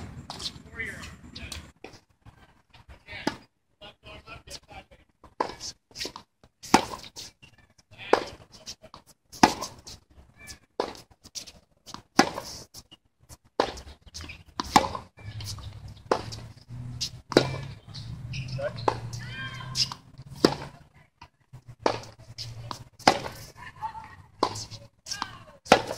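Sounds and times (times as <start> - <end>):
tennis ball bouncing: 5.2 - 7.3, 9.4 - 10.0, 11.9 - 12.5, 13.6 - 20.8, 21.7 - 25.9
racket hitting tennis ball: 5.3 - 7.3, 8.1 - 10.0, 11.9 - 12.6, 13.6 - 20.8, 21.8 - 23.6, 24.3 - 25.9.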